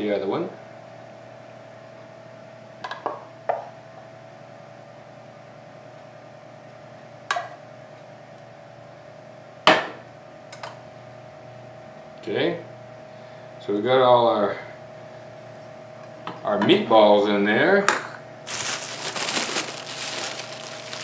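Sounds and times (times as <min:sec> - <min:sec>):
faint steady hum: 0:05.9 - 0:21.0.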